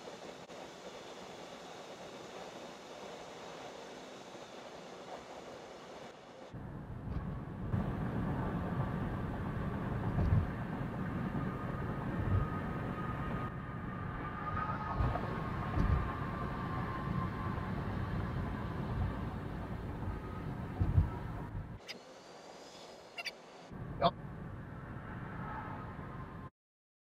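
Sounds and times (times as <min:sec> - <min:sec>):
road and tyre noise: 0:00.0 - 0:26.5
low thumps: 0:20.0 - 0:21.8.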